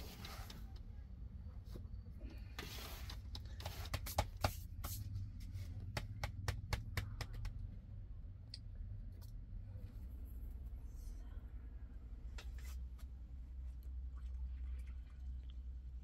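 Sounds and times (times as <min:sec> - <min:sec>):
steady low rumble: 0:04.8 - 0:16.0.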